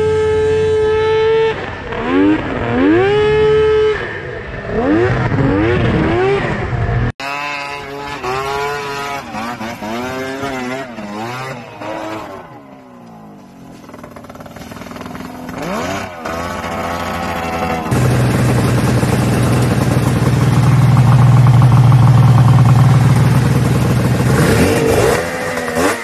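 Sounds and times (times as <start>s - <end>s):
snowmobile engines revving: 0.0s - 26.0s.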